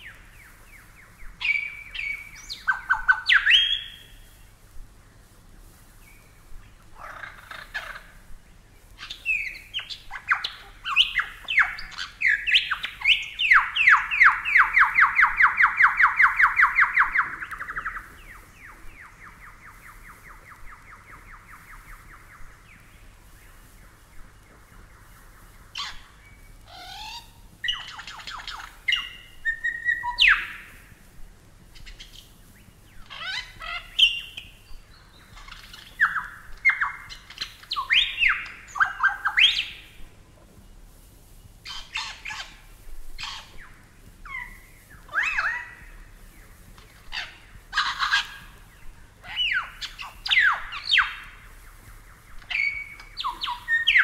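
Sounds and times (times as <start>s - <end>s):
bird whistles and sweeping calls: 0.0s - 4.7s, 8.8s - 31.1s, 31.8s - 40.2s, 40.9s - 54.0s
lyrebird singing: 0.0s - 4.7s, 5.6s - 54.0s.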